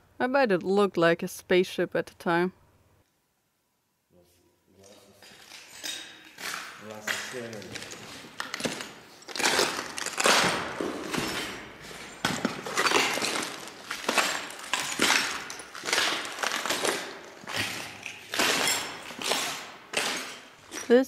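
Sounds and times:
footsteps crunching on broken glass: 4.9 - 21.0.

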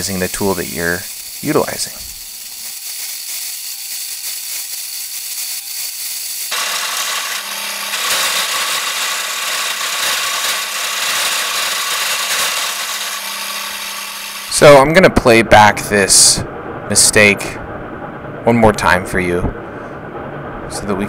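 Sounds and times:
turning tool scraping wood: 0.0 - 14.8
wood lathe humming: 0.7 - 15.0.

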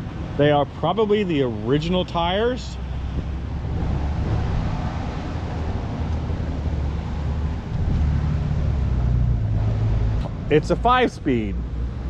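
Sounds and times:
wind buffeting microphone: 2.9 - 10.5.

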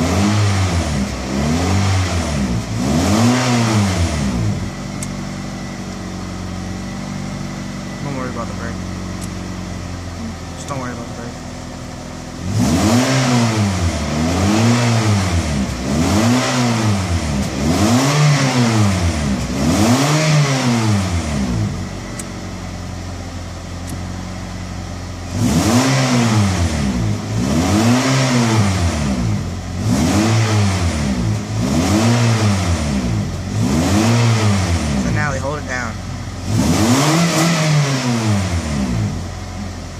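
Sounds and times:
car engine idling: 0.0 - 27.8, 28.4 - 39.9
car engine revving: 0.0 - 39.9.

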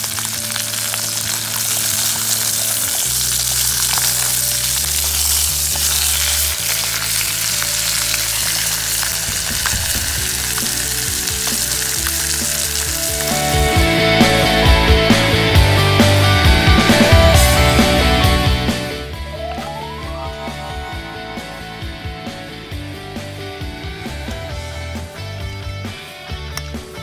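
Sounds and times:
chicken sizzling in hot oil: 0.0 - 18.9
tongs scraping and clinking: 0.1 - 13.4.

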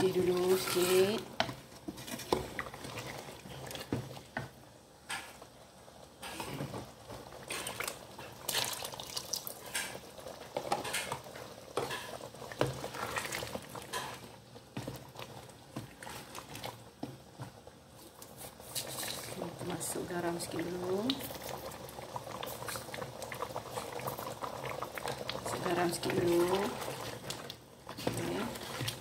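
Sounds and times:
curry bubbling in a pot: 0.0 - 29.0
ladle scraping and knocking a pot: 0.3 - 4.2.

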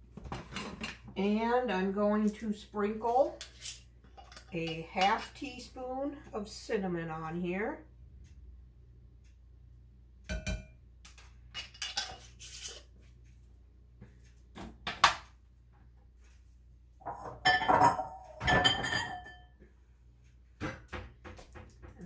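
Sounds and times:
dishes clattering: 11.6 - 12.4, 17.0 - 19.6.

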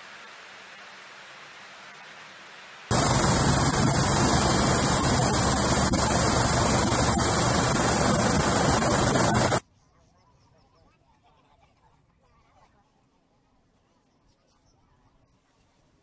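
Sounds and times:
helicopter turbine and rotor noise: 2.9 - 9.6.

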